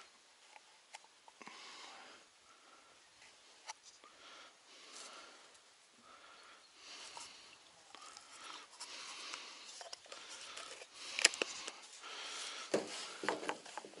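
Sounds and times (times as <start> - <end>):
rustling and light knocks: 12.6 - 14.0.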